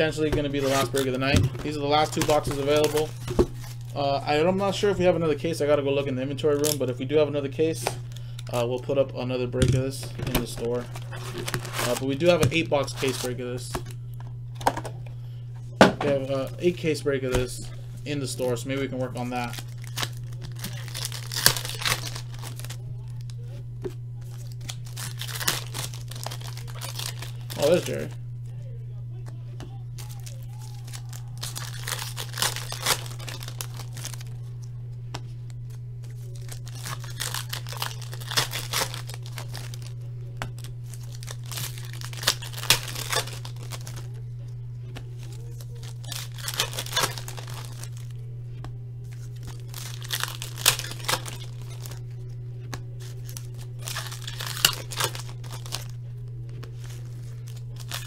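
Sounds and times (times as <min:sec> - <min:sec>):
cards being handled: 0:00.0 - 0:04.9, 0:09.7 - 0:15.0, 0:15.8 - 0:28.2, 0:29.2 - 0:58.0
foil wrappers tearing and crinkling: 0:00.0 - 0:08.8, 0:09.5 - 0:14.0, 0:16.2 - 0:23.6, 0:24.2 - 0:28.2, 0:29.2 - 0:34.5, 0:35.5 - 0:44.2, 0:45.2 - 0:48.1, 0:49.0 - 0:52.1, 0:53.0 - 0:58.0
steady low hum: 0:00.0 - 0:58.0.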